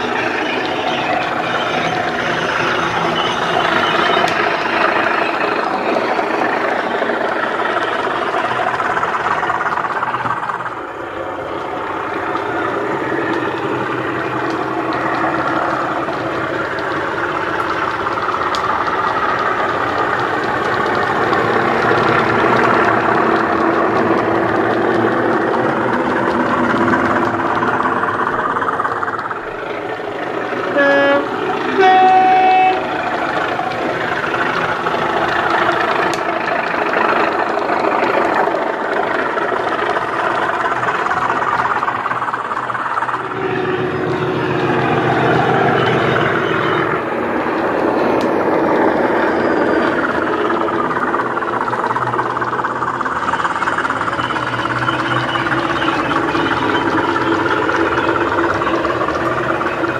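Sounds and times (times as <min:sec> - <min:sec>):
diesel locomotive engine sound: 0:00.0 - 0:59.9
two-tone horn: 0:30.7 - 0:33.0.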